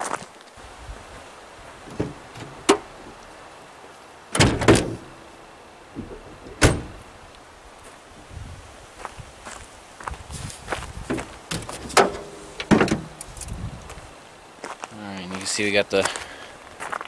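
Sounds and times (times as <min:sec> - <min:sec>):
truck door clunking open: 0:01.8 - 0:03.2, 0:04.3 - 0:05.2, 0:05.9 - 0:07.0, 0:11.0 - 0:13.2
truck door banging shut: 0:01.9 - 0:02.9, 0:04.3 - 0:05.2, 0:06.0 - 0:07.0, 0:11.1 - 0:13.2.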